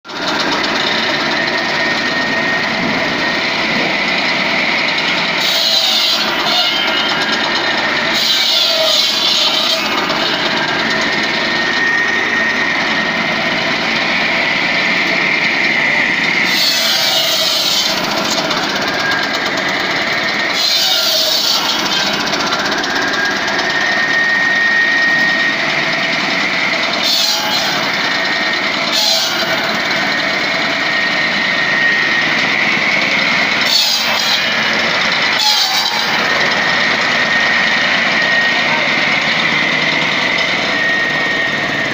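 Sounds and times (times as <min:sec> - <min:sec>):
small petrol engine running: 0:00.0 - 0:41.9
circular saw blade whining: 0:00.1 - 0:41.9
saw cutting log with rasp: 0:05.3 - 0:11.7, 0:16.4 - 0:23.3, 0:26.7 - 0:31.1, 0:33.6 - 0:34.8, 0:35.4 - 0:36.8.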